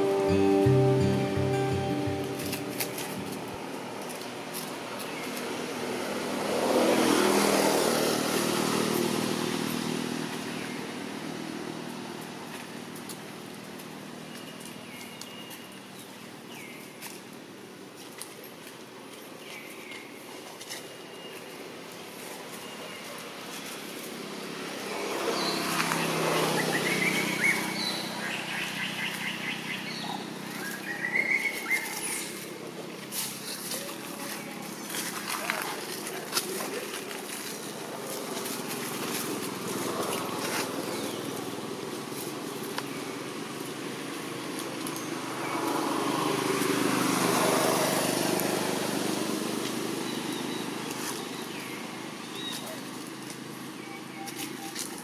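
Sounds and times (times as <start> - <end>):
vehicle engine passing by: 0.0 - 14.3, 23.2 - 54.2
high chirping calls: 25.4 - 32.5.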